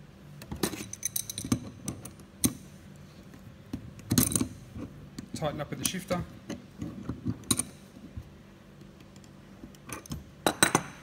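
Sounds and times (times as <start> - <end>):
spanner clinking on metal: 0.6 - 2.6.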